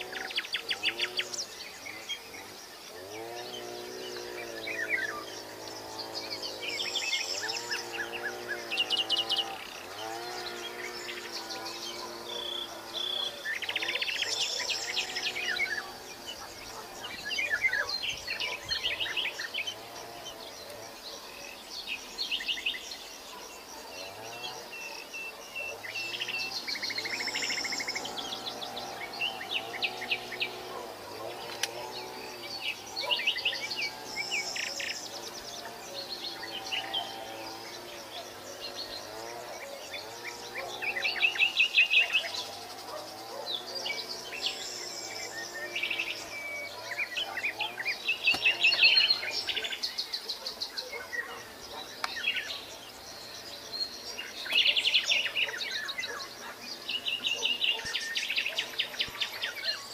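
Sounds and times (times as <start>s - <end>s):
songbirds chirping and trilling: 0.0s - 59.9s.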